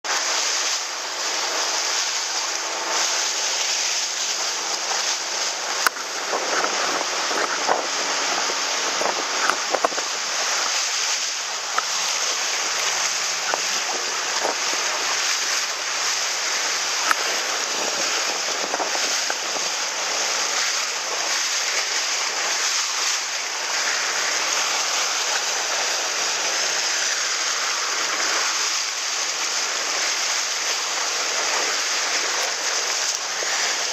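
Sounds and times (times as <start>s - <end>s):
water splashing along boat hull: 0.0s - 33.9s
wind on microphone: 4.2s - 24.5s.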